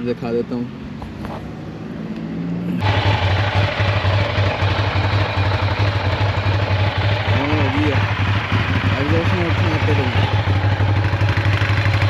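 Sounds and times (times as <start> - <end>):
motorcycle engine idling: 2.8 - 12.0.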